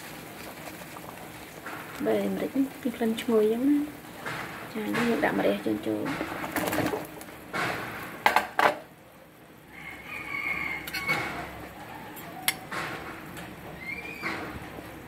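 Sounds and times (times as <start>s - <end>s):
metal ladle knocking pot: 4.2s - 8.8s.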